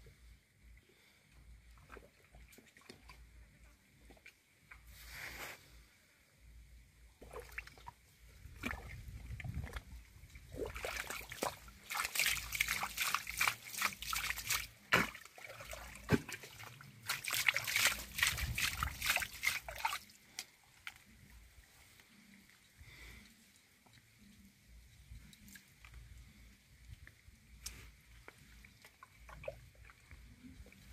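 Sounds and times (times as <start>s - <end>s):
hands squelching in mud: 10.5s - 20.8s.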